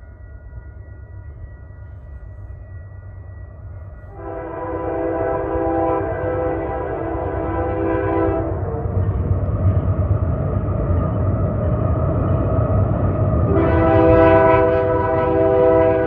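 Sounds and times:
locomotive rumble: 3.6 - 16.0
train air horn blast: 4.1 - 9.0, 13.5 - 16.0.

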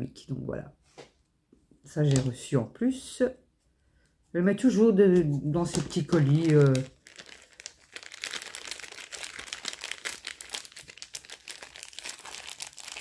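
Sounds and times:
plastic bag crinkling: 5.6 - 13.0.

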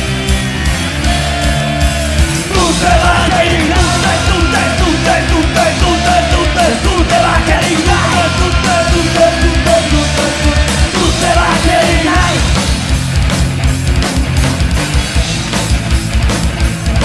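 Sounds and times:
driving drum beat: 0.0 - 17.0
rock band playing live: 0.0 - 17.0
lead vocal singing: 1.5 - 12.8.

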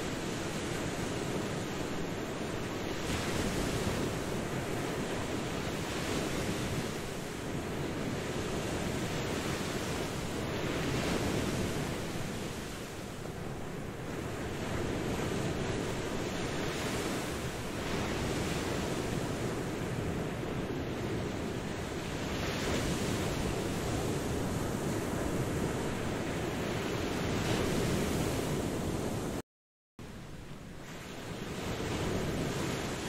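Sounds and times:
ocean waves breaking: 0.0 - 29.4, 30.1 - 33.0.

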